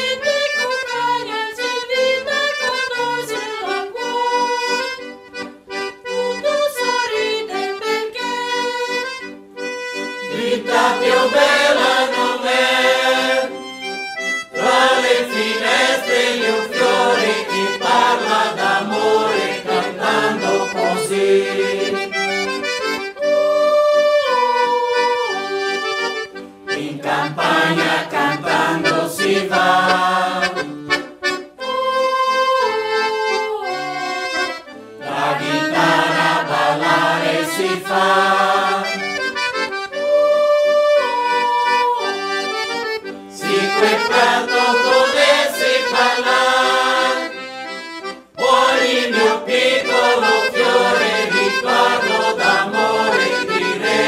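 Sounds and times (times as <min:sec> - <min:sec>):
mixed choir singing folk song: 0:00.0 - 0:04.9, 0:10.2 - 0:22.3, 0:26.7 - 0:31.0, 0:31.6 - 0:39.4, 0:43.3 - 0:54.0
accordion: 0:00.0 - 0:54.0.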